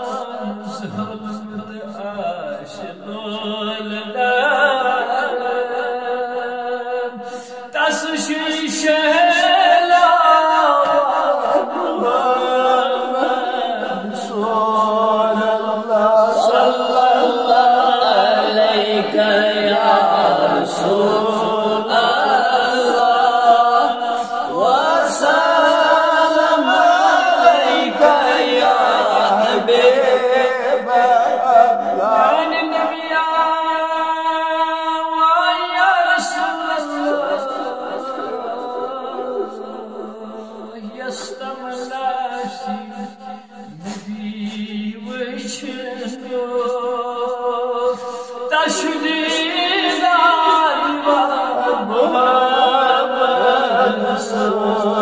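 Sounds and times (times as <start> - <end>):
man chanting unaccompanied: 0.0 - 55.0.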